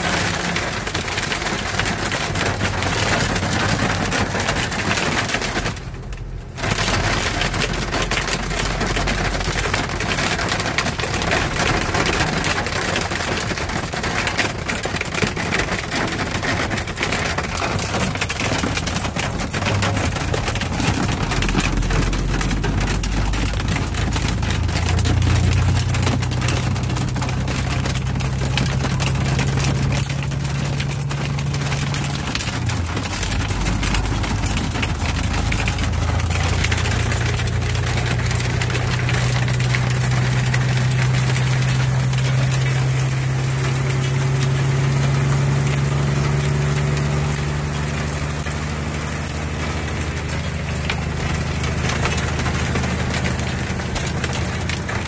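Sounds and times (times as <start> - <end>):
hail and rain on truck cab: 0.0 - 55.0
truck engine humming: 15.4 - 55.0.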